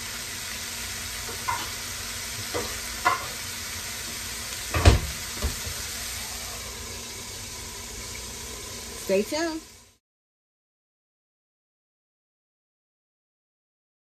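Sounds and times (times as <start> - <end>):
vegetables sizzling in hot oil: 0.0 - 10.0
spatula knocking in pan: 1.3 - 1.8, 2.4 - 3.4, 4.7 - 5.8.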